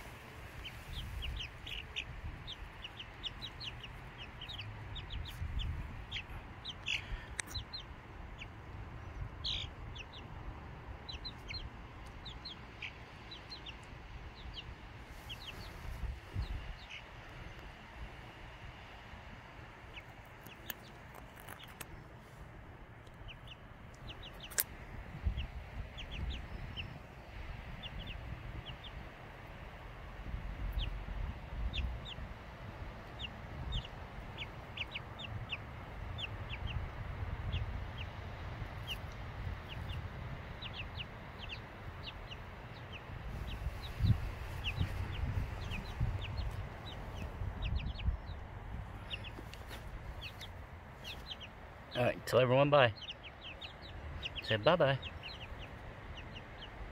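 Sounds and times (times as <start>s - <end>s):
young chickens peeping: 0.0s - 56.9s
low rumble: 29.8s - 51.5s.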